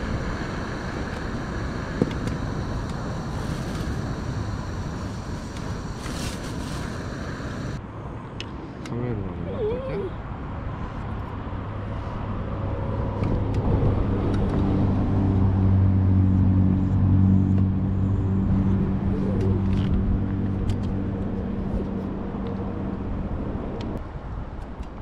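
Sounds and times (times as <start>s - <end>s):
motor engine humming: 0.0s - 7.8s.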